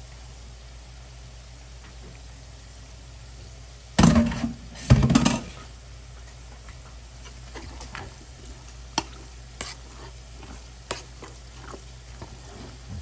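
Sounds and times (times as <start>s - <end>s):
spoon stirring rice: 7.2s - 12.9s.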